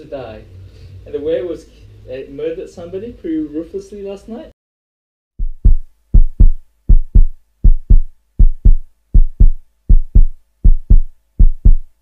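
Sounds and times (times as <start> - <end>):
heartbeat double thumps: 5.4 - 12.0.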